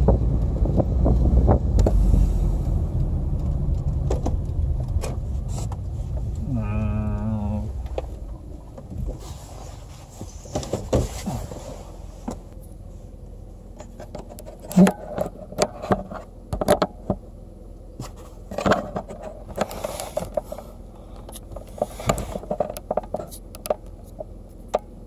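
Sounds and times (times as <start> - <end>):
vehicle engine rumbling: 0.0 - 25.0
knocks and scrapes near microphone: 8.8 - 12.5, 21.6 - 23.3.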